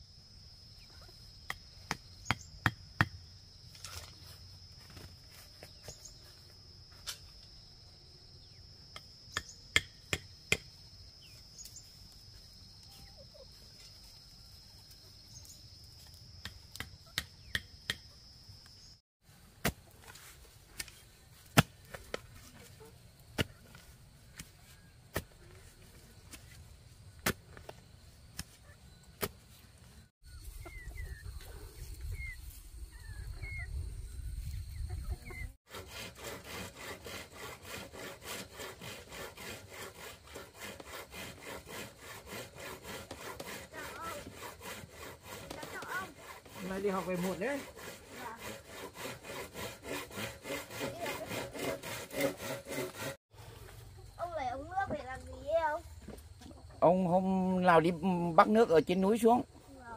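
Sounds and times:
wooden block hammering stake: 1.5 - 3.2, 8.9 - 10.7, 16.4 - 18.1, 20.8 - 22.2, 27.2 - 27.7
spade chopping into soil: 19.6 - 19.8, 20.7 - 22.2, 25.1 - 25.3, 27.2 - 27.7, 29.2 - 29.4.

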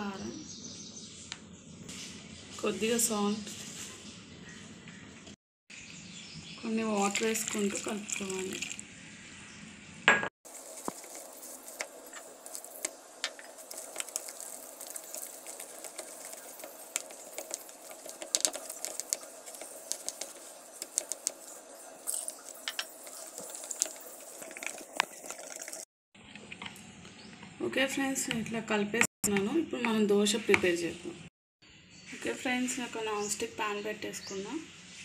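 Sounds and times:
whisk stirring thick batter: 10.5 - 25.8
whisk wires tapping plastic bowl: 12.6 - 21.4.

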